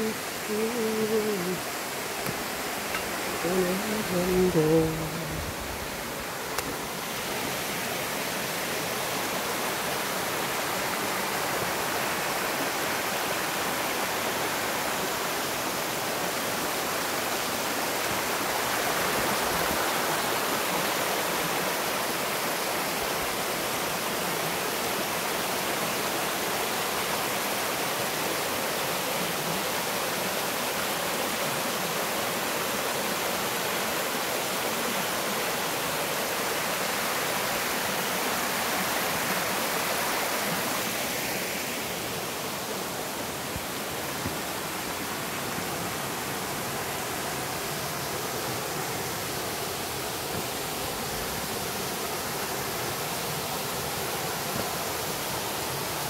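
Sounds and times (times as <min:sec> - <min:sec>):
stream rushing over rocks: 0:00.0 - 0:56.0.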